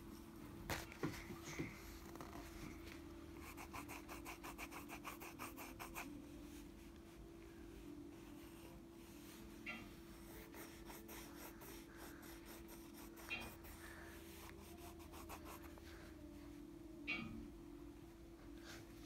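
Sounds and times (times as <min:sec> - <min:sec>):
steady low hum: 0:00.0 - 0:19.0
pencil scribbling on paper: 0:03.4 - 0:06.1, 0:08.4 - 0:15.8.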